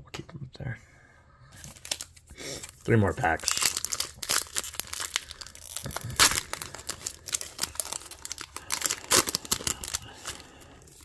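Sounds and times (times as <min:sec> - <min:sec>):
foil pack tearing and crinkling: 0:01.7 - 0:11.0.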